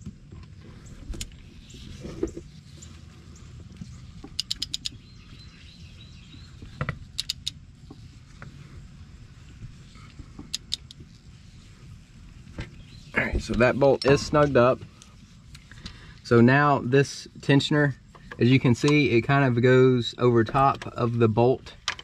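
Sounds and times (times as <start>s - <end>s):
low background rumble: 0.0s - 22.0s
ratchet wrench clicking: 4.4s - 4.9s, 7.1s - 7.6s.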